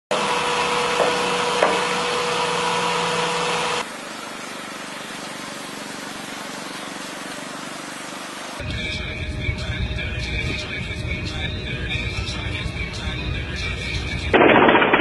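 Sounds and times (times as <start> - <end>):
small motor of toy bulldozer: 0.1 - 7.8
loud mechanical hum: 0.1 - 15.0.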